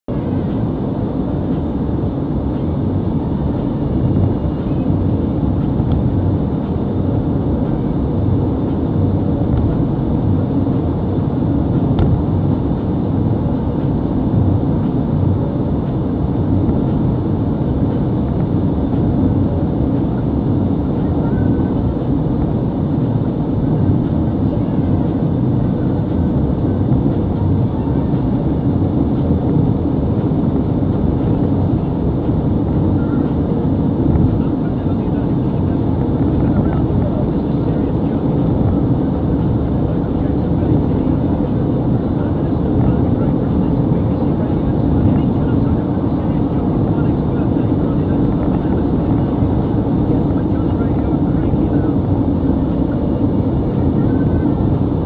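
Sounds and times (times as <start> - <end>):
car road noise roar: 0.1 - 55.0.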